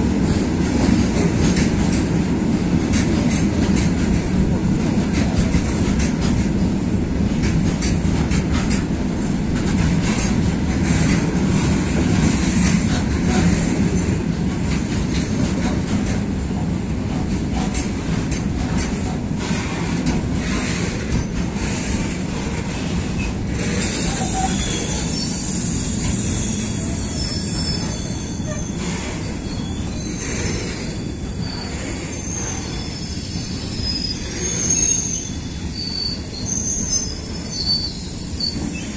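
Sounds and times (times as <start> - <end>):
freight train rumbling: 0.0 - 38.9
high wheel squeal: 23.8 - 38.9.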